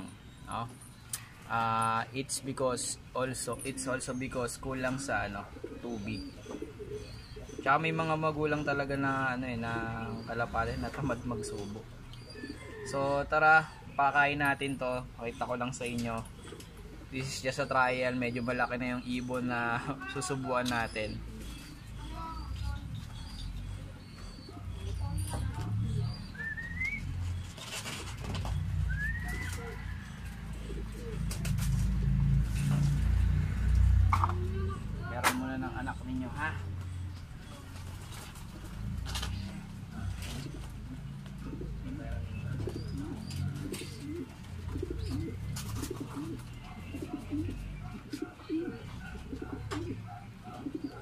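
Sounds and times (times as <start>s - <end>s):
pigeons cooing: 0.0s - 51.0s
rising squeaky calls: 8.5s - 31.2s
sharp clicks and rustles: 27.2s - 29.7s, 31.0s - 34.6s.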